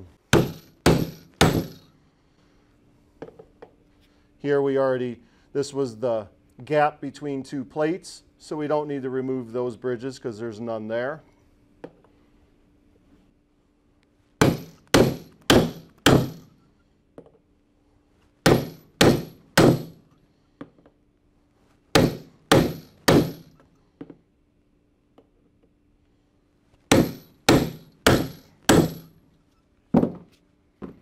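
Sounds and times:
hammer striking steel tool: 0:00.3 - 0:01.9, 0:14.4 - 0:16.6, 0:18.5 - 0:20.0, 0:22.0 - 0:23.6, 0:26.9 - 0:29.1.

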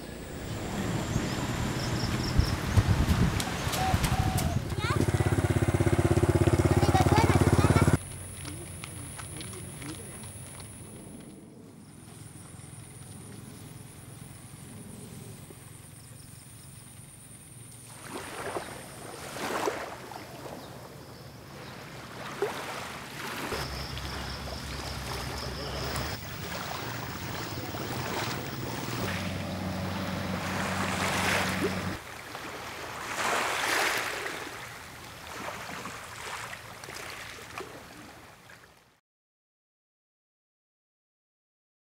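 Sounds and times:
wind noise: 0:00.2 - 0:04.9
small waves washing onto beach: 0:00.2 - 0:11.1, 0:17.8 - 0:38.8.

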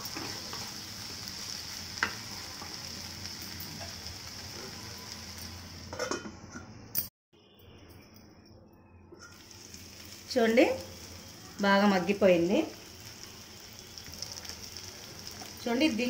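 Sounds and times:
vegetables sizzling in a pan: 0:00.0 - 0:06.0, 0:09.2 - 0:16.0
glass lid clattering on pan: 0:05.9 - 0:06.4.

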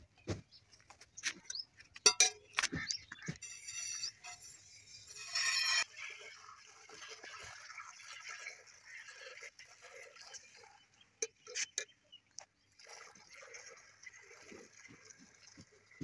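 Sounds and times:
milk spurting into a metal pail: 0:04.5 - 0:11.0, 0:12.4 - 0:16.0.

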